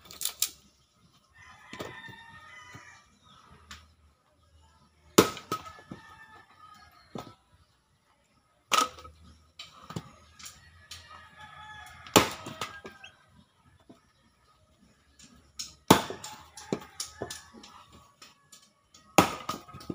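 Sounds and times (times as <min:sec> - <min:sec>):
axe splitting firewood: 0:05.2 - 0:06.0, 0:12.1 - 0:12.9, 0:15.2 - 0:17.7, 0:19.0 - 0:19.9.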